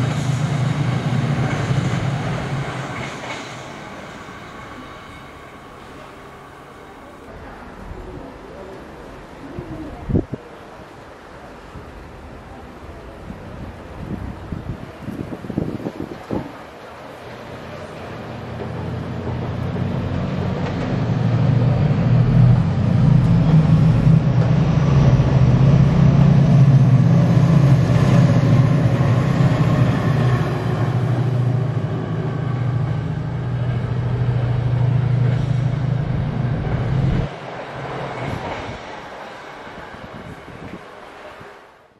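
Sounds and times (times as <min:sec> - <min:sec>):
locomotive engine drone: 0:16.8 - 0:41.2.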